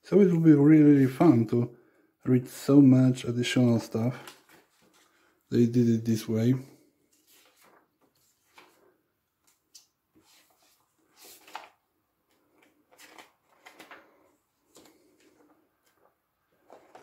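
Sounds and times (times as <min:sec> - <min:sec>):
book pages turning: 0:04.0 - 0:05.3, 0:07.0 - 0:17.0.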